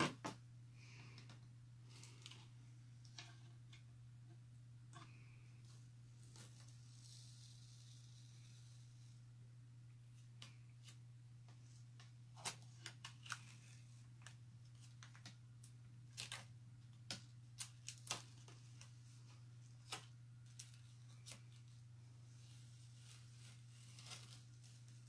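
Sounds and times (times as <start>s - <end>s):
transfer peeling crinkles and ticks: 12.0s - 19.0s.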